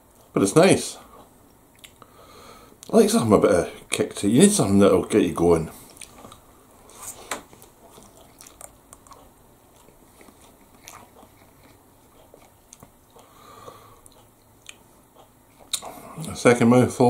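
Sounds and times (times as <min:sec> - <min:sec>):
person chewing noodles: 0:01.1 - 0:02.1, 0:05.9 - 0:06.5, 0:07.6 - 0:16.4
wet mouth clicks and smacks: 0:01.7 - 0:02.0, 0:08.0 - 0:11.2.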